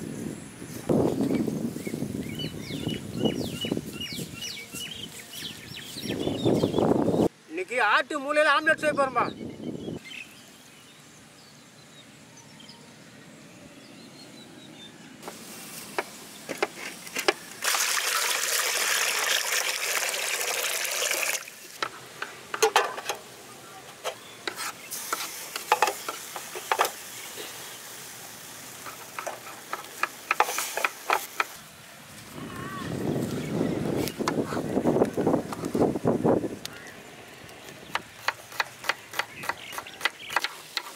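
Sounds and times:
water pouring in a stream: 17.6 - 21.8.

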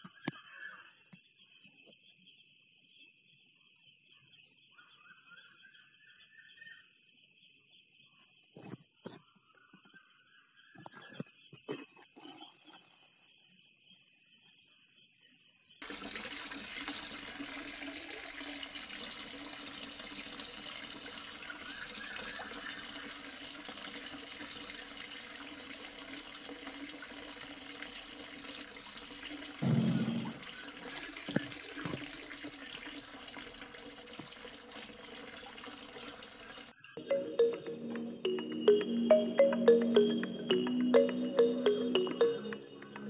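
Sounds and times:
water spraying from hose: 15.8 - 36.7
short thump: 29.6 - 30.4.

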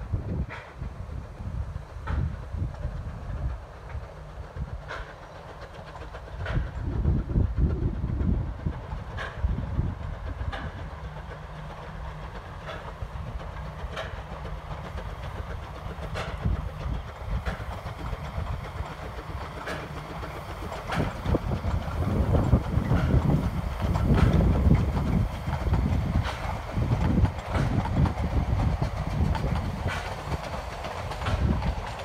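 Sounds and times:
steam train rumbling past: 0.0 - 32.0
wheels clicking over rail joints: 0.2 - 32.0.

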